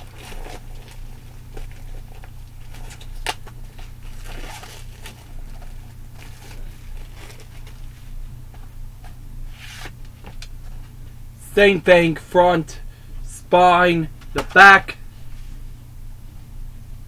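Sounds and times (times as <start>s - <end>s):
plastic wrap crinkling: 0.0s - 7.9s
steady low hum: 0.0s - 17.0s.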